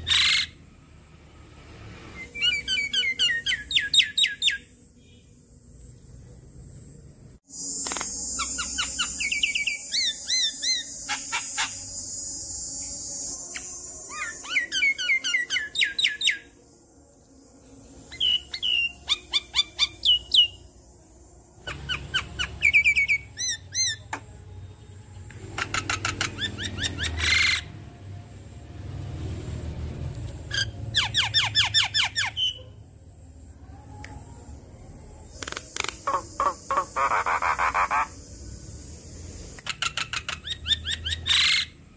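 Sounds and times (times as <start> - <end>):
insect high buzz: 4.2 - 41.9
myna chattering and whistling: 35.3 - 38.2.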